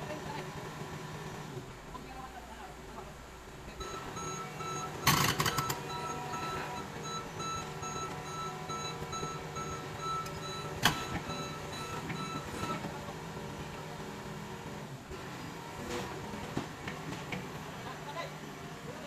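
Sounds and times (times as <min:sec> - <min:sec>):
excavator diesel engine running: 0:00.0 - 0:19.0
travel alarm beeping: 0:03.8 - 0:12.9.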